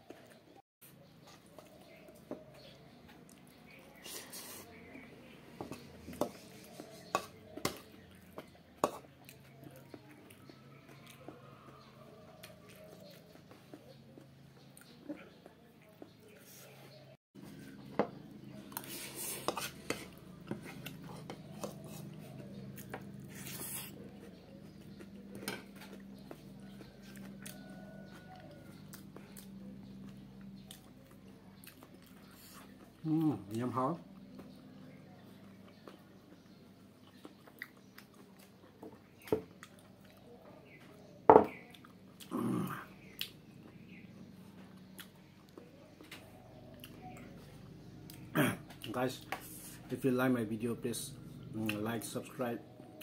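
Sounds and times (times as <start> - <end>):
metal spoon scraping a bowl: 6.1 - 7.8, 18.8 - 22.2.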